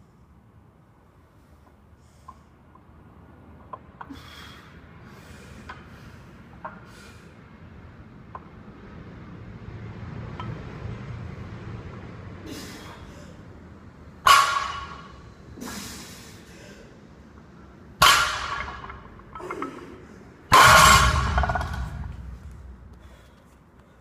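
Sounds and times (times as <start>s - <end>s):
barbell thudding on rubber floor: 20.5s - 22.4s.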